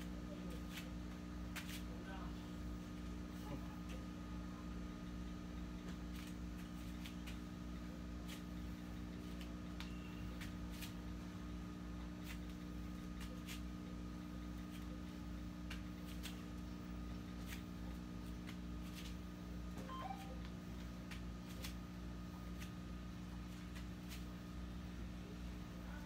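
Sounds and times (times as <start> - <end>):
low mechanical hum: 0.0 - 26.0
faint high whine: 9.7 - 10.4, 19.7 - 20.8.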